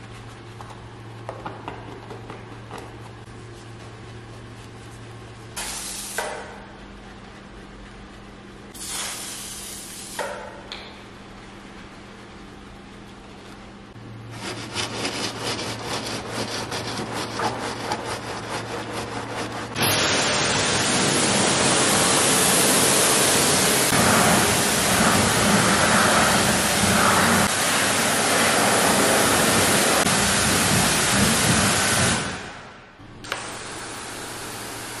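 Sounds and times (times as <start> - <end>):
brush scrubbing a wheel: 3.0 - 5.6, 14.3 - 19.8
pressure washer spraying: 5.6 - 6.2, 19.8 - 32.4.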